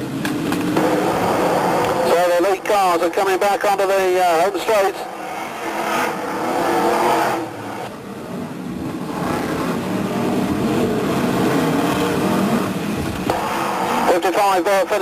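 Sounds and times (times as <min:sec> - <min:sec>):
race car engines at full throttle: 0:00.0 - 0:15.0.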